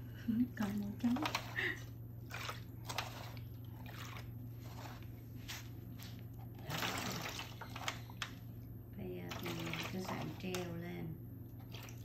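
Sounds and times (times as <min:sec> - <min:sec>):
liquid splashing in a foil pan: 0:00.6 - 0:08.4, 0:09.3 - 0:10.8, 0:11.6 - 0:12.0.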